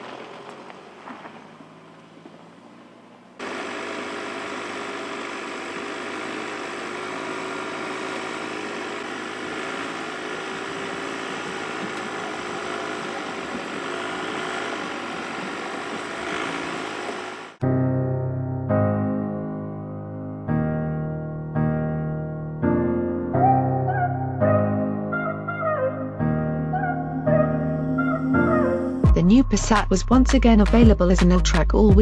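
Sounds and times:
car engine running: 0.0s - 17.6s.

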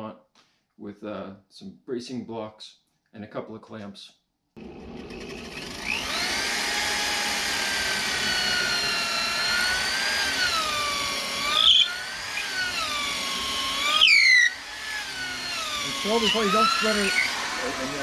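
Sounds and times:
electric drill boring through wood: 4.6s - 18.0s.

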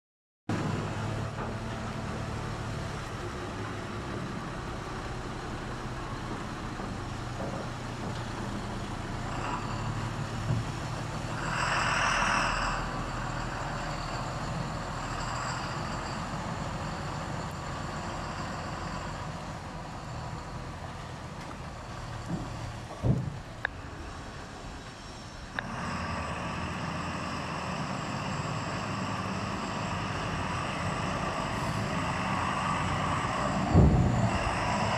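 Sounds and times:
lorry diesel engine running: 0.5s - 34.9s
thin high squeal: 11.4s - 20.4s.

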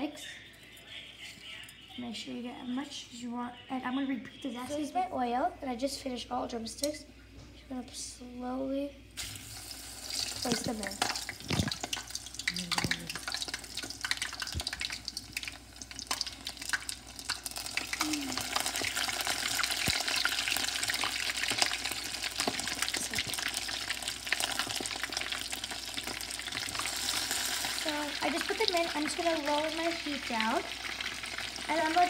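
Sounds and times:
oil sizzling in deep fryer: 9.2s - 32.0s.

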